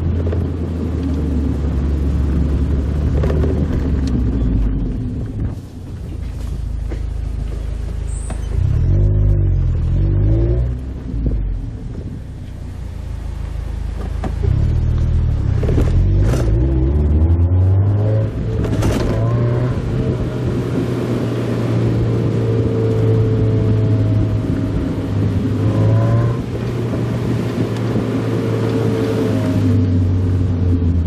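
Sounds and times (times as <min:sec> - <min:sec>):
road and wind noise: 0:00.0 - 0:31.0
car engine revving: 0:06.4 - 0:12.1, 0:12.7 - 0:31.0.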